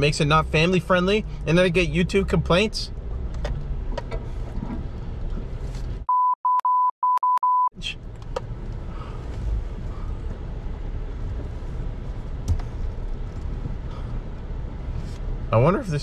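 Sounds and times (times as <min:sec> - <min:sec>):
truck rumbling: 0:00.0 - 0:06.1, 0:07.8 - 0:16.0
censor bleep: 0:06.1 - 0:07.8.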